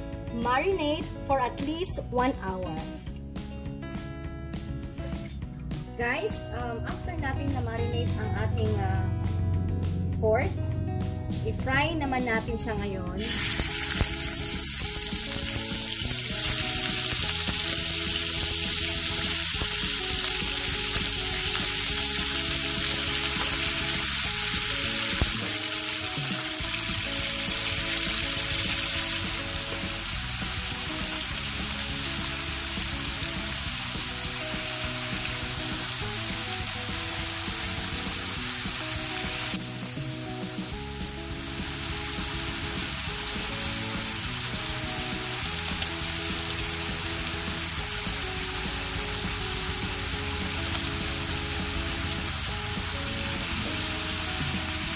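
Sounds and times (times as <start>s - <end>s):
quiet music: 0.0s - 54.9s
meat sizzling in a wok: 13.2s - 54.9s.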